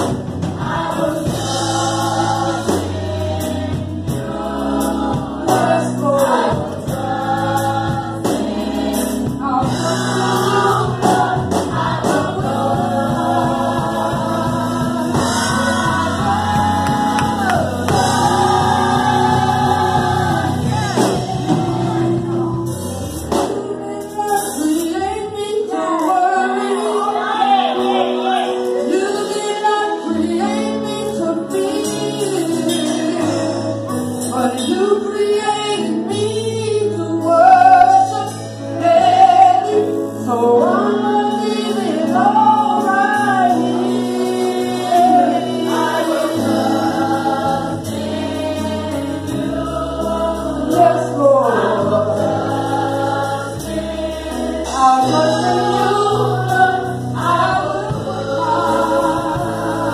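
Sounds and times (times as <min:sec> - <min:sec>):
long bass notes: 0:00.0 - 0:23.5
women singing gospel: 0:00.0 - 0:59.9.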